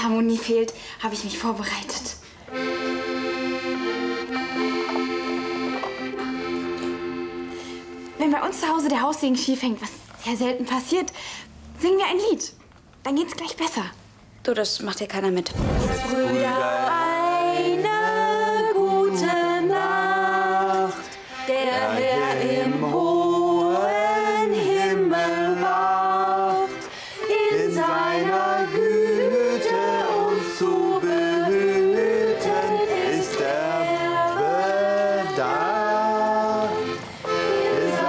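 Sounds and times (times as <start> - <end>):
piano accordion: 2.5 - 8.8, 15.8 - 38.0
woman singing: 16.0 - 36.8.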